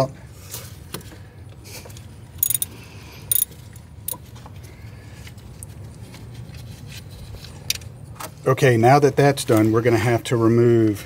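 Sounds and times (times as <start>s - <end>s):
metal tool clinking: 2.4s - 2.7s, 3.3s - 4.2s.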